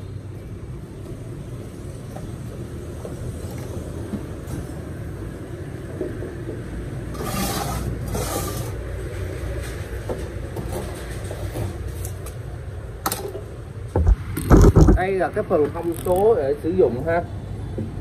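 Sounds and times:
cable scraping rustle: 7.1 - 8.9, 14.1 - 15.0, 15.7 - 16.4.

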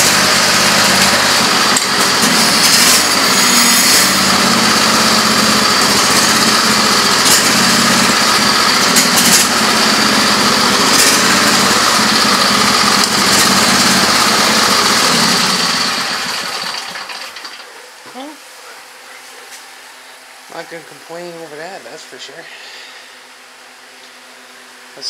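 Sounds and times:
riding lawn tractor engine running: 0.0 - 17.8.

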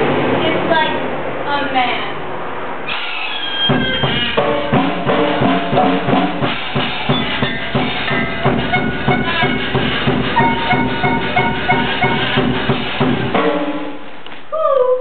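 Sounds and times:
live band music: 2.9 - 14.1
drums keeping a quick beat: 3.6 - 14.2.

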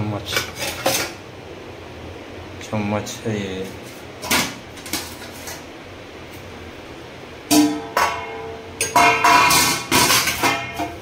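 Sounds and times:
metal plates and bowls clanking: 7.5 - 11.0.

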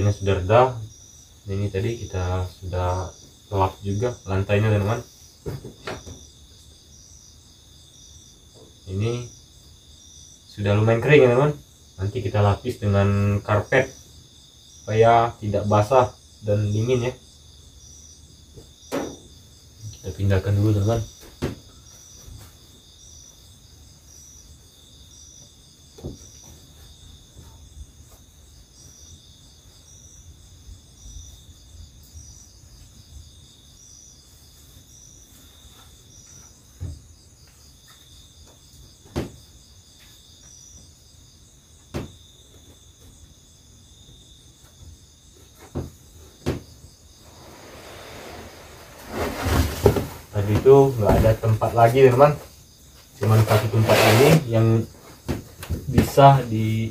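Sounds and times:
high insect drone: 0.0 - 56.9
insects chirping: 0.0 - 56.9
wooden knocks on plank floor: 5.4 - 6.2, 39.0 - 39.4, 41.9 - 42.2, 45.6 - 46.7, 55.2 - 56.2.

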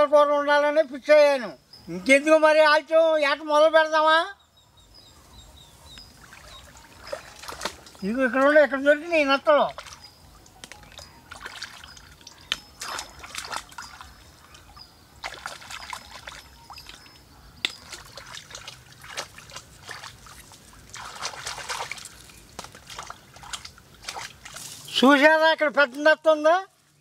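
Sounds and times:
water splashing and trickling: 5.7 - 27.0.

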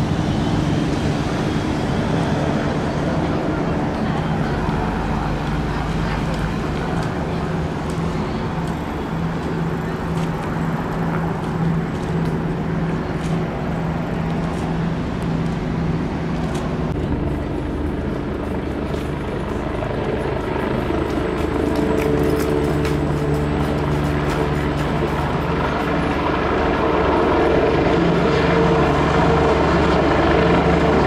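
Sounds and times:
boat engines running: 0.0 - 31.0.

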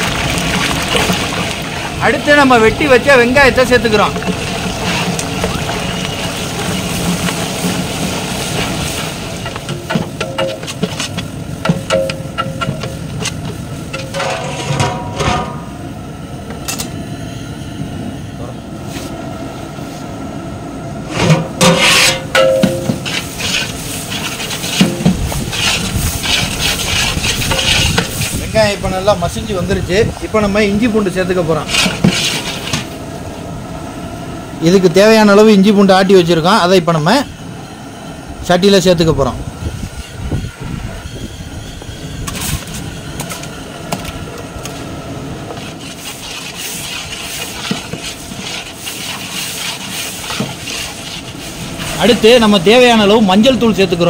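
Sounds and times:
onions frying in oil: 0.0 - 14.0, 22.6 - 33.0
ladle scraping a cooking pot: 4.2 - 15.5, 21.2 - 28.4, 31.6 - 32.9, 45.5 - 52.0.

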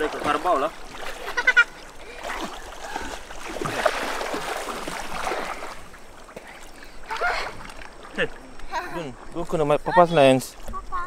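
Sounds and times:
river water splashing: 0.0 - 11.0
child shouting: 10.8 - 11.0.

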